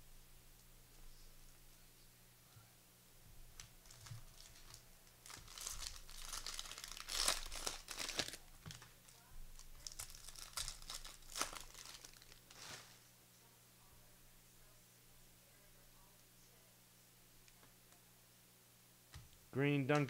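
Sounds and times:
wrappers tearing and crinkling: 0:03.6 - 0:13.0.

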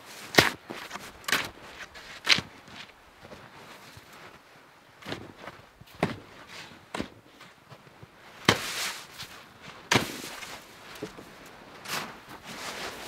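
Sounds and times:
shovel crunching into snow: 0:08.4 - 0:11.1, 0:11.8 - 0:13.0
hiss of snow thrown: 0:08.5 - 0:09.1
shovel scraping: 0:08.5 - 0:10.8, 0:11.8 - 0:13.0.

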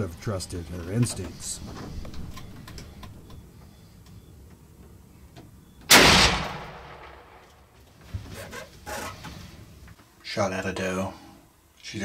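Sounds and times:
rifle shot: 0:05.9 - 0:07.6.

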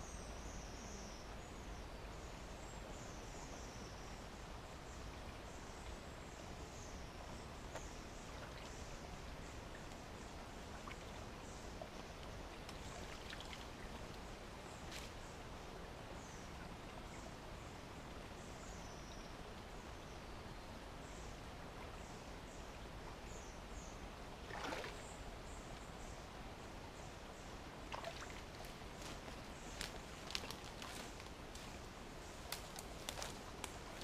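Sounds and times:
brook water hissing: 0:00.0 - 0:34.0
scuffling among branches in water: 0:24.5 - 0:25.0, 0:27.9 - 0:34.0
small birds chirping: 0:27.0 - 0:34.0.

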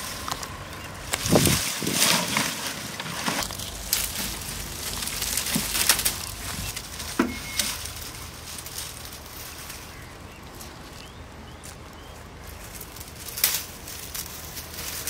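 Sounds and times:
brushwood rustling and crackling: 0:00.0 - 0:15.0
sticks snapping: 0:01.1 - 0:07.2.

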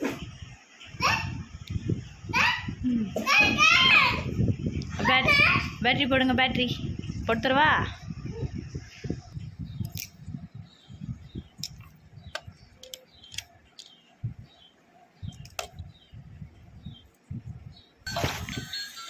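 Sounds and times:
electronic toy music and effects: 0:18.1 - 0:19.0.

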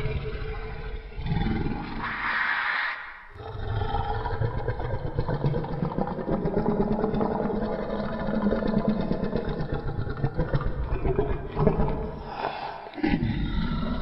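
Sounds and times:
low pulsing creature rumble: 0:03.4 - 0:12.4.

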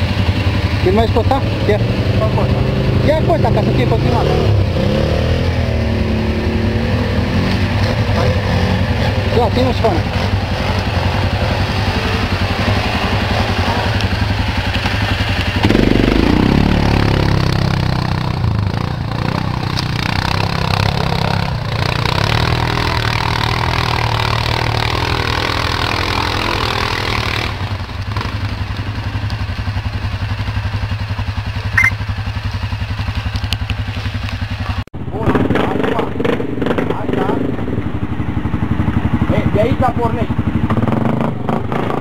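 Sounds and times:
quad engine revving under load: 0:00.0 - 0:29.2, 0:34.7 - 0:37.6
sharp click: 0:31.8 - 0:32.0.

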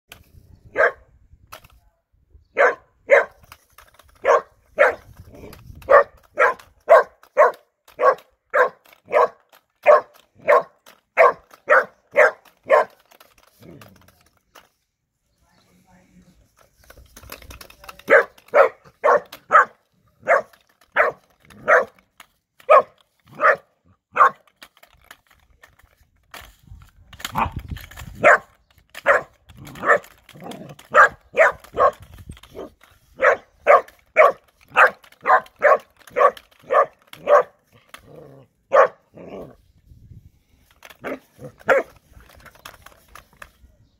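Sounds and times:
puppy barking: 0:00.8 - 0:01.0, 0:02.6 - 0:03.4, 0:04.2 - 0:05.0, 0:05.9 - 0:13.0, 0:18.1 - 0:22.0, 0:22.7 - 0:24.4, 0:30.9 - 0:32.0, 0:32.6 - 0:37.6, 0:38.7 - 0:39.0.

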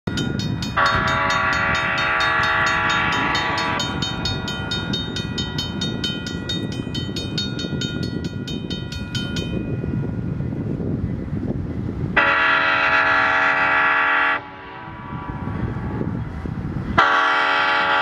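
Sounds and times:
crossing bell dinging: 0:00.1 - 0:10.7
locomotive horn blast: 0:00.7 - 0:04.9, 0:12.2 - 0:16.0, 0:16.9 - 0:18.0.

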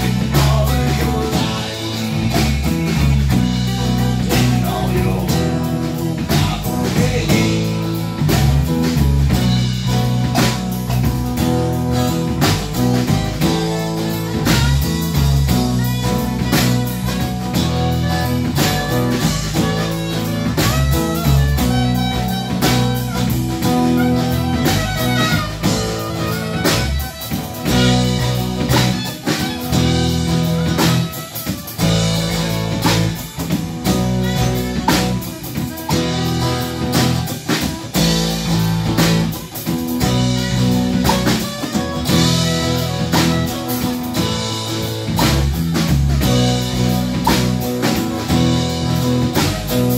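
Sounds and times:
bass guitar: 0:00.0 - 0:49.9
drum kit: 0:00.0 - 0:49.9
percussion: 0:00.0 - 0:49.9
saxophone playing: 0:00.0 - 0:49.9
strummed acoustic guitar: 0:00.0 - 0:49.9.

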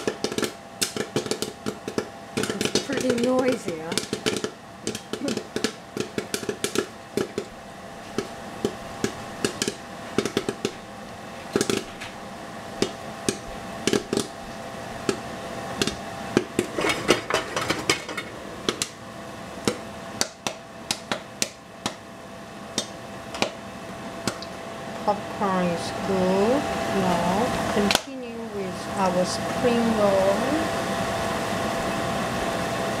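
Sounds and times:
hot oil popping and spattering: 0:00.0 - 0:19.0, 0:19.6 - 0:22.1
steady hum: 0:00.0 - 0:33.0.

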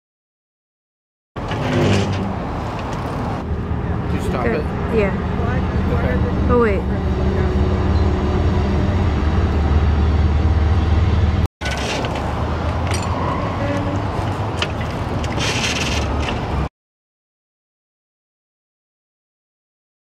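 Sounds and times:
low engine drone: 0:03.4 - 0:11.5.

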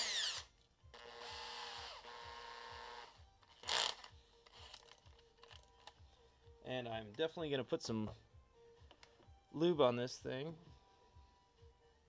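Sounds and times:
drill motor running: 0:00.0 - 0:00.4, 0:01.0 - 0:04.1
drill chuck rattling: 0:03.5 - 0:05.6.

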